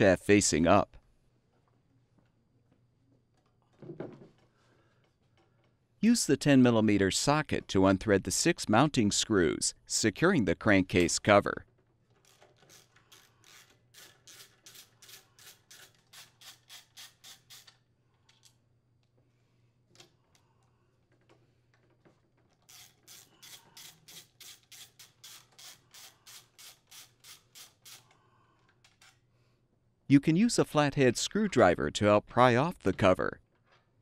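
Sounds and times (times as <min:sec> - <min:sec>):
socket ratchet clicking: 0:12.2 - 0:17.8, 0:22.7 - 0:28.2.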